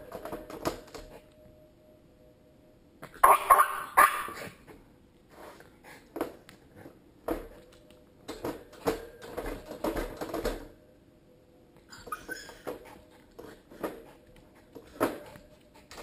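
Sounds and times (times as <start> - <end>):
dog rattling plastic cage: 8.3 - 10.7.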